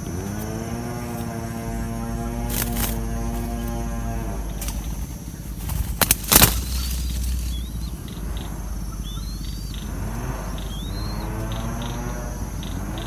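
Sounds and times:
small bird chirping: 0.0s - 13.0s
dove wing claps: 4.6s - 7.7s.

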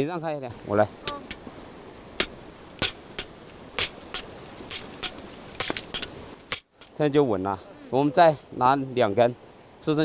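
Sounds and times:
hammer pounding wooden stake: 2.2s - 6.7s.

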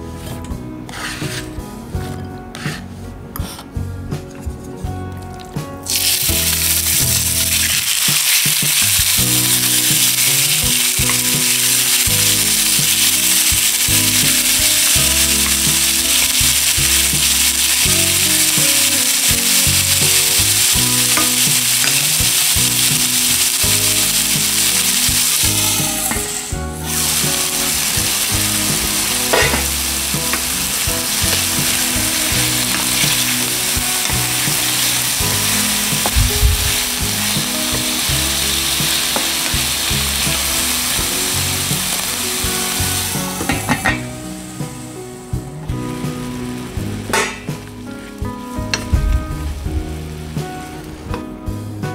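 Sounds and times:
wooden spoon stirring: 5.9s - 43.8s
chicken sizzling in hot oil: 5.9s - 48.3s.

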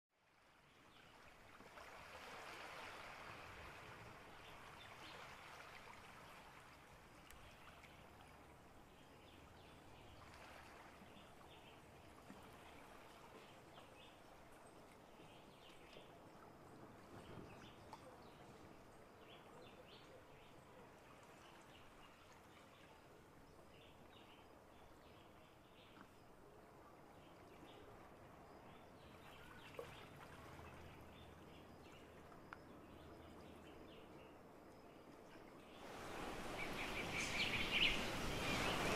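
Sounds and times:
small waves lapping on shore: 0.2s - 38.9s
faint bird chirps: 28.6s - 35.9s, 36.5s - 38.9s.

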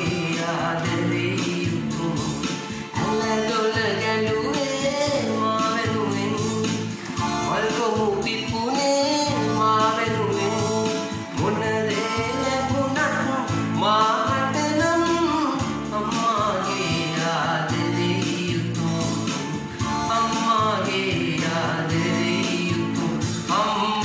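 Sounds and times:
electronic keyboard: 0.0s - 24.0s
man singing: 0.0s - 24.0s.

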